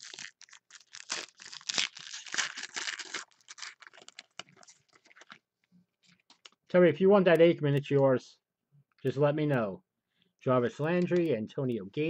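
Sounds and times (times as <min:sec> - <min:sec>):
wrapper tearing and crinkling: 0:00.0 - 0:05.4.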